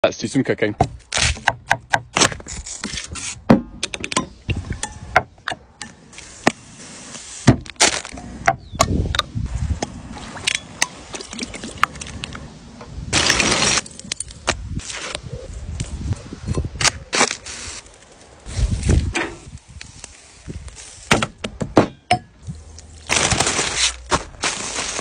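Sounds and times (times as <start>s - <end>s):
rustling noise: 11.9s - 21.2s, 22.4s - 25.0s.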